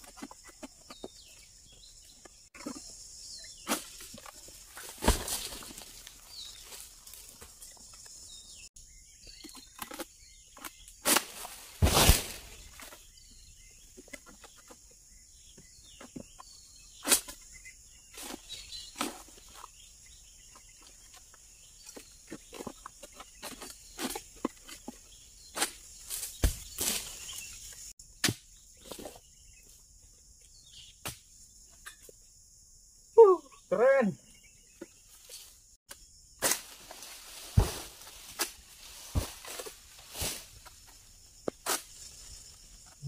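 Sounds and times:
pole sickle knocking and scraping: 20.5 - 29.2, 37.4 - 42.0.

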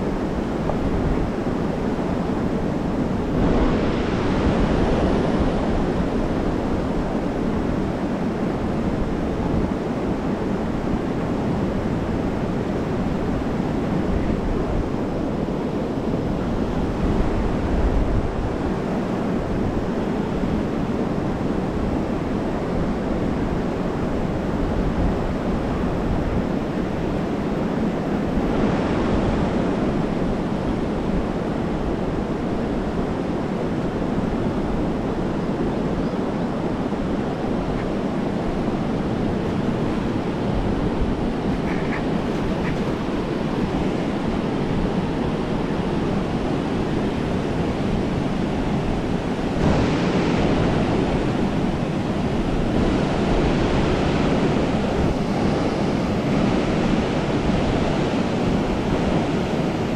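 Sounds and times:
wind rushing over microphone: 0.0 - 59.9
water noise: 24.5 - 59.9.

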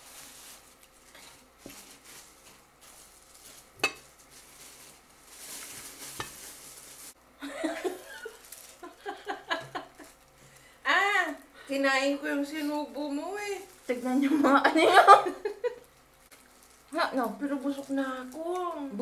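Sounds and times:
rustling: 0.0 - 7.2, 8.1 - 9.1.

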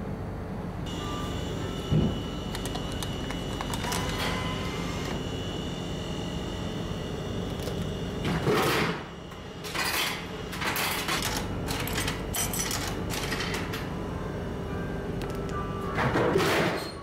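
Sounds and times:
steady machine hum: 0.0 - 16.7
vending machine clatter: 2.0 - 5.1, 7.6 - 13.9, 15.2 - 17.0.

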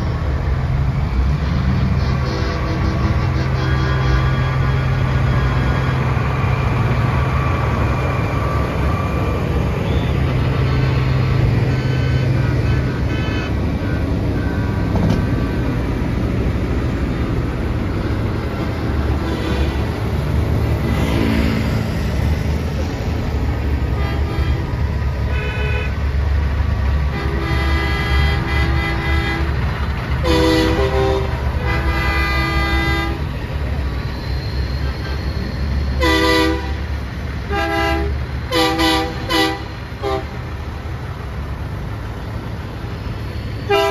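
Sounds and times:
diesel truck engines: 0.0 - 43.9
truck horns blasting: 1.3 - 6.4, 9.7 - 16.2, 18.9 - 20.2, 23.8 - 26.2, 26.8 - 33.4, 34.7 - 40.6, 43.6 - 43.9.

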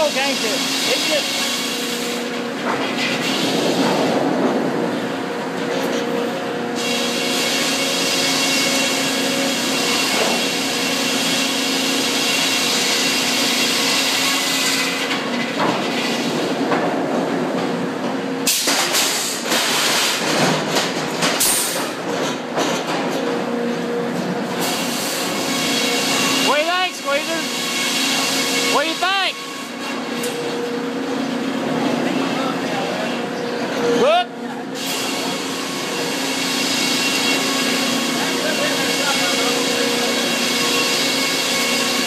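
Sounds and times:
sharp clanks and knocks: 16.6 - 23.4.

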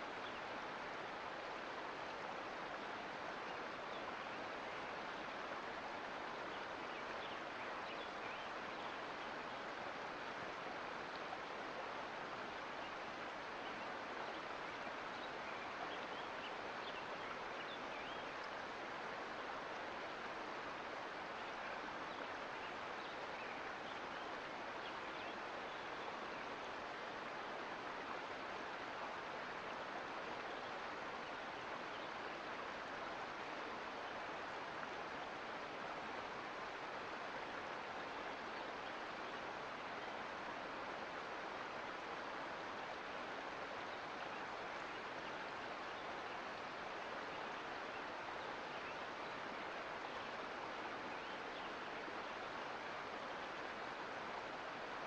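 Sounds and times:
creek water rushing: 0.0 - 55.0.

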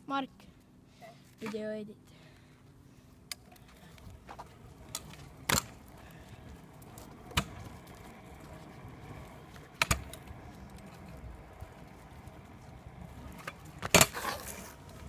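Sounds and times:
scooter wheels rumbling on asphalt: 2.3 - 15.0
scooter clacks: 3.3 - 15.0.

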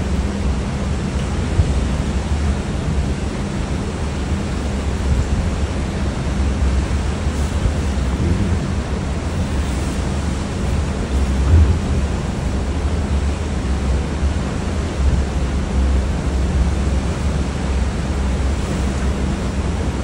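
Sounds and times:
sea wash: 0.0 - 20.0
wind rushing over microphone: 4.9 - 20.0.

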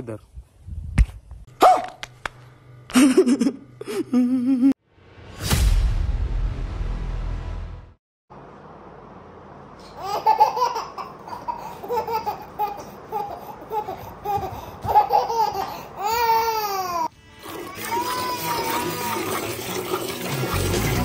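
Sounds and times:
toddler giggling: 9.9 - 17.1
toddler squealing: 17.7 - 19.4.

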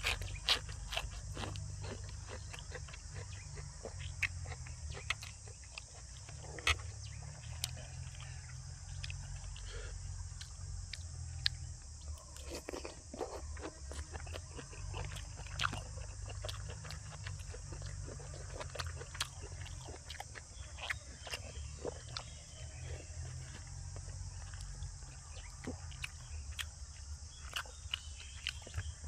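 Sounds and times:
close chewing mouth clicks: 0.0 - 29.0.

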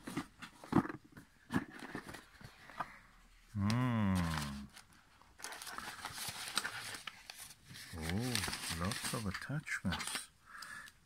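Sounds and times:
rustles: 4.1 - 10.3.

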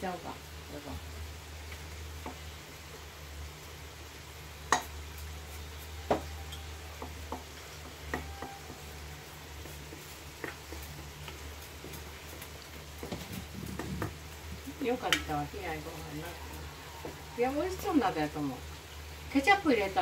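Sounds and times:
rice sizzling in a frying pan: 0.0 - 20.0
spatula clacking on pan: 4.7 - 5.0, 9.6 - 14.2
wooden spatula stirring: 4.7 - 18.0.

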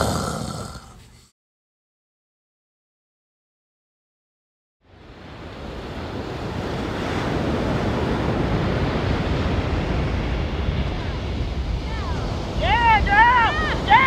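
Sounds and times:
surf breaking on beach: 4.9 - 14.0
wind buffeting microphone: 5.1 - 14.0.

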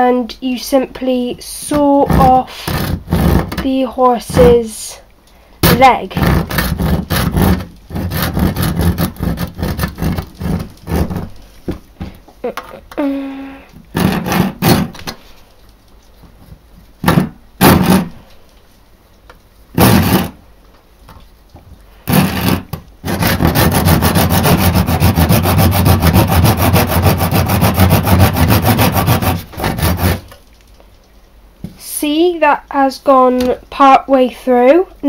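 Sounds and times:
hand saw cutting plastic: 1.7 - 3.8, 5.6 - 11.4, 13.9 - 15.2, 17.0 - 18.2, 19.8 - 20.4, 22.1 - 30.4.

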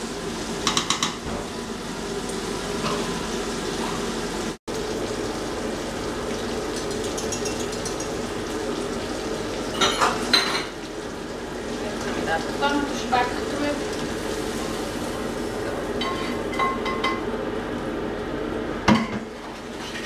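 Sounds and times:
meat sizzling in a pan: 0.0 - 18.1
metal utensil clinking on cookware: 7.0 - 8.2.

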